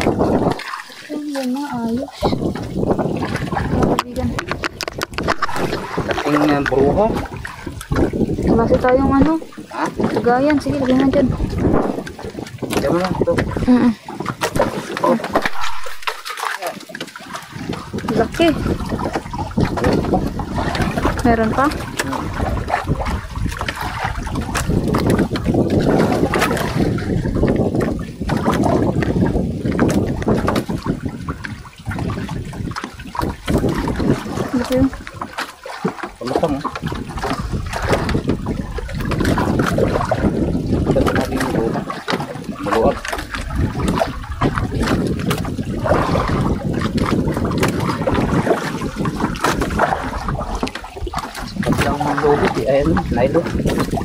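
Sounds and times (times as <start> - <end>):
rushing wind: 0.0 - 16.3, 16.9 - 54.0
water lapping around boat: 0.0 - 54.0
fishing gear clicks and knocks: 3.7 - 8.1.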